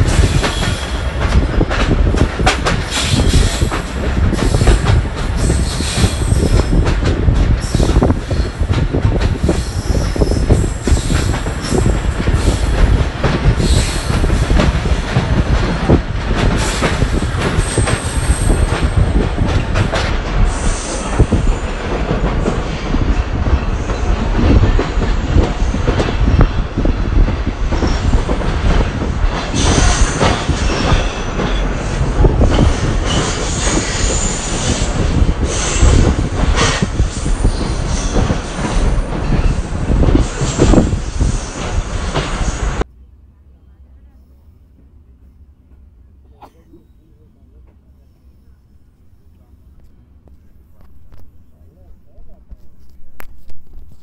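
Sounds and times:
train wheels clattering on rails: 0.0 - 42.9.

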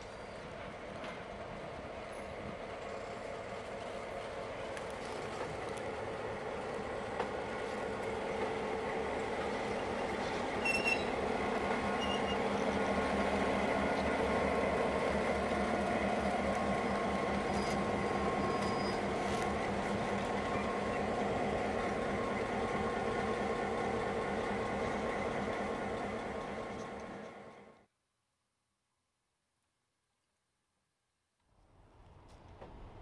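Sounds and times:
model train rolling on track: 0.0 - 27.8
wheels clicking and squeaking: 10.2 - 11.2, 12.0 - 12.6, 17.4 - 19.6.

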